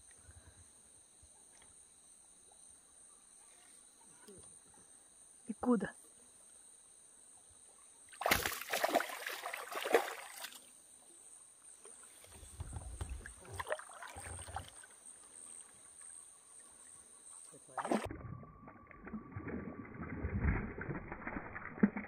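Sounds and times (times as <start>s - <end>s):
water sloshing with low bumps: 8.1s - 10.7s, 11.7s - 22.0s
water splashing beside kayak: 8.1s - 10.7s, 11.8s - 18.1s.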